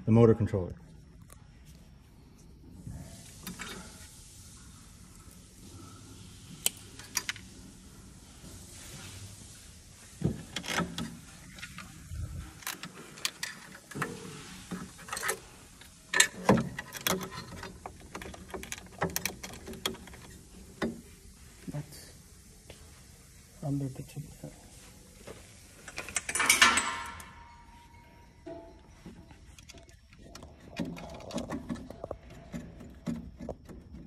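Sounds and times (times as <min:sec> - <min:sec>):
metal battery cables clinking: 0:10.4 - 0:21.0, 0:25.8 - 0:34.0.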